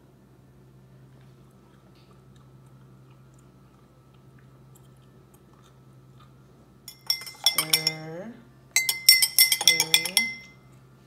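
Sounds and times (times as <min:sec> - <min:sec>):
metal spoon clinking against glass: 0:06.9 - 0:08.1, 0:08.8 - 0:10.6.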